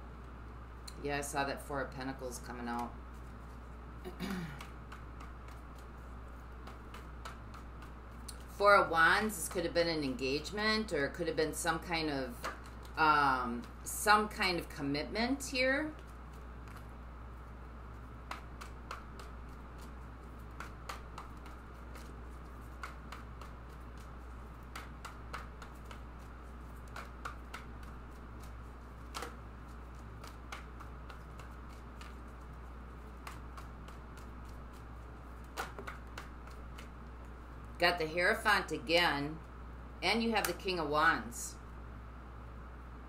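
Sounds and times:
steady low hum: 0:00.0 - 0:43.0
cards being shuffled: 0:02.7 - 0:08.6, 0:15.9 - 0:37.7.

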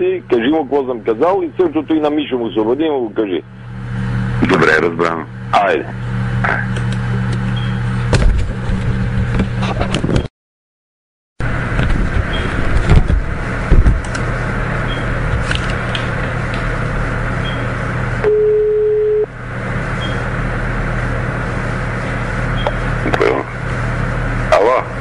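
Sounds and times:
telephone line hiss and hum: 0:16.8 - 0:20.4
telephone ringback tone: 0:18.2 - 0:19.3.

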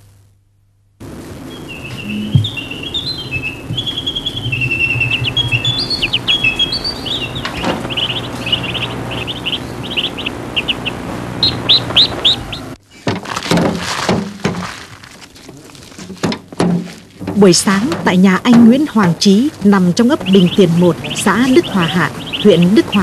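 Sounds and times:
low steady hum: 0:00.0 - 0:23.0
small birds chirping: 0:01.4 - 0:12.8, 0:18.4 - 0:23.0
compost tipped onto plastic sheet: 0:13.0 - 0:17.4.

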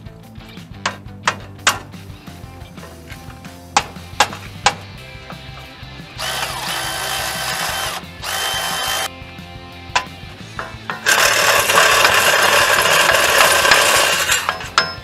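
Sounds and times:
cordless power tool whirring: 0:05.3 - 0:09.1, 0:10.9 - 0:14.8.

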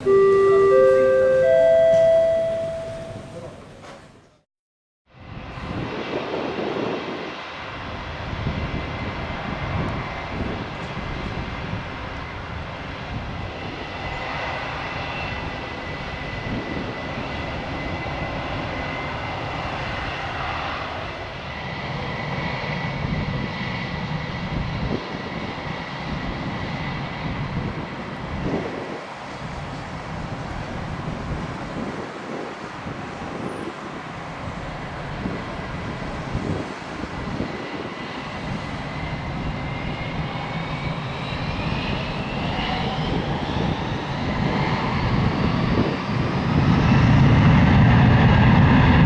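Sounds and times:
high engine whine: 0:00.0 - 0:03.8
jet engines rumbling: 0:05.2 - 0:49.0.

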